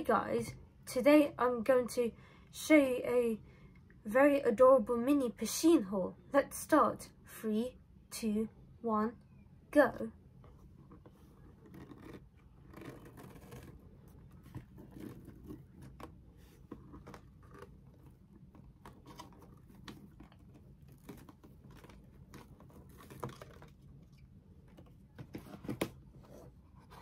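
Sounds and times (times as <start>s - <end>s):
packaging rustling: 11.4s - 25.9s.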